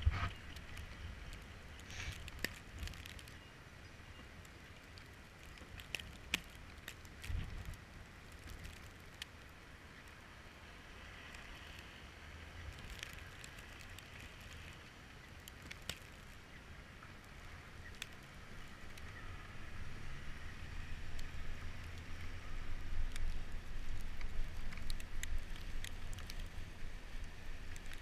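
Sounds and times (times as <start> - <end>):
sharp small clicks: 0.0 - 3.4, 4.4 - 10.1, 12.7 - 16.4, 17.8 - 19.2, 23.0 - 26.6, 27.2 - 28.0
low rumble of traffic: 0.0 - 28.0.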